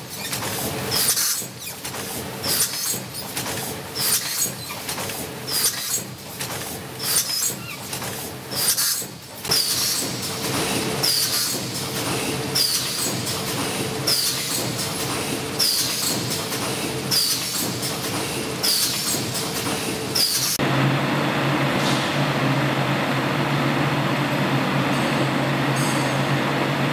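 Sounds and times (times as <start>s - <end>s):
packing machine clacking: 0.0s - 20.6s
machine hum: 9.5s - 26.9s.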